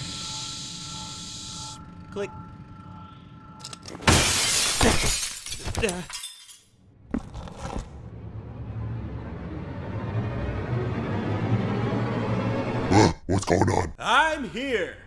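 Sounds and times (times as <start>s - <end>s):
falling glass shards: 3.9s - 6.8s
glass shattering: 4.0s - 6.8s
low music: 8.1s - 12.9s.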